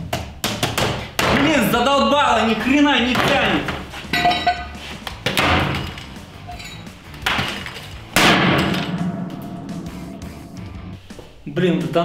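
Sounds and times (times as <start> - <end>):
axe smashing a laptop: 7.2 - 9.0.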